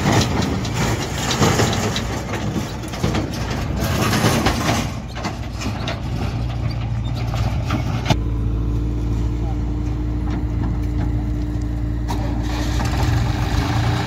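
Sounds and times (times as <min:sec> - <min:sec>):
trolley clatter: 0:00.0 - 0:08.2
tractor diesel engine running: 0:00.0 - 0:14.0.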